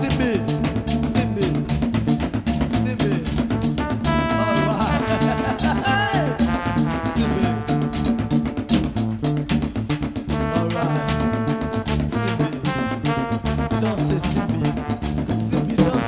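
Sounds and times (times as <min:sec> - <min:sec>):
brass horns: 0:00.0 - 0:01.8, 0:03.5 - 0:09.2, 0:10.3 - 0:16.0
drums dance beat: 0:00.0 - 0:16.0.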